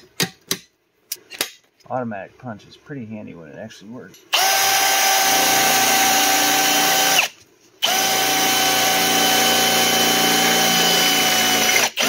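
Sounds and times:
cordless drill whining: 4.3s - 12.0s.

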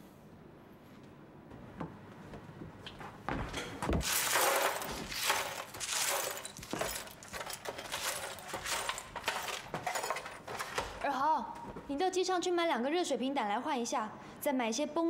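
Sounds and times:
broom sweeping glass shards: 4.0s - 10.5s.

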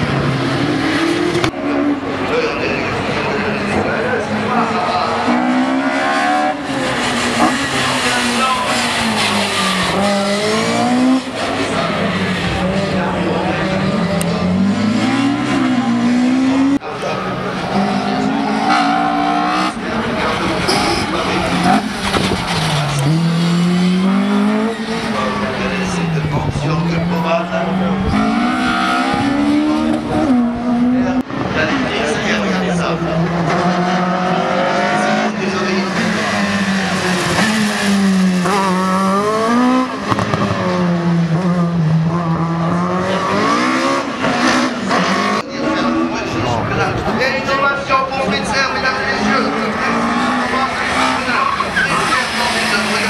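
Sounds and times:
race car engine revving: 0.0s - 53.0s
tyres squealing: 48.8s - 53.0s.

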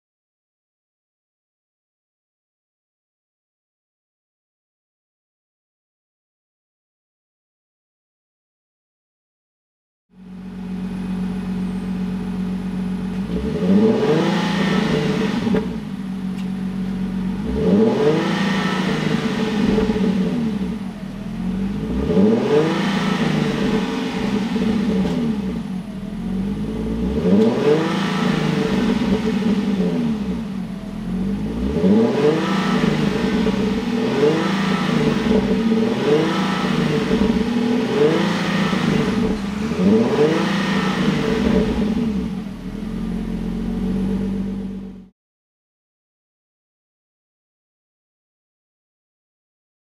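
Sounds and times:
car engine revving: 10.3s - 45.1s.

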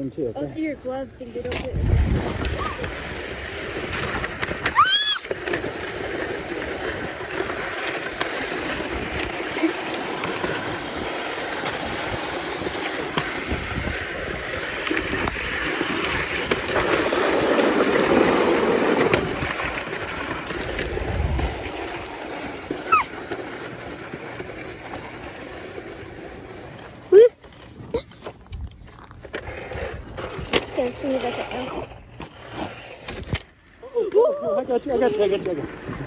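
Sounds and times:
sled sliding on ice: 0.0s - 36.0s
wind on microphone: 0.9s - 5.2s, 10.4s - 22.2s.

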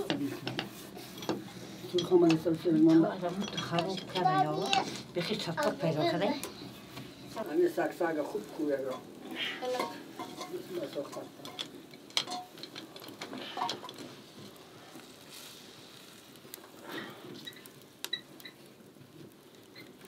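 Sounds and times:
metal cookware clinking: 1.2s - 4.9s, 8.8s - 14.0s.

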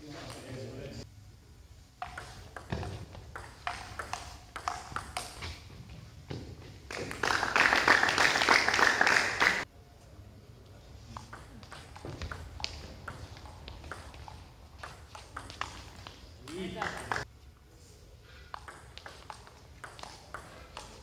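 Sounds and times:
table tennis ball clicking: 2.0s - 5.4s
loud clapping: 6.9s - 9.7s, 16.8s - 17.2s.

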